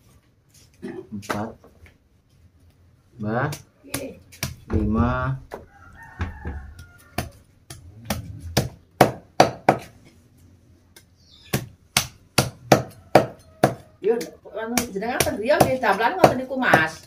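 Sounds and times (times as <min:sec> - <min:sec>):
cleaver chopping chicken on wood: 0:06.2 - 0:09.9, 0:11.5 - 0:16.9.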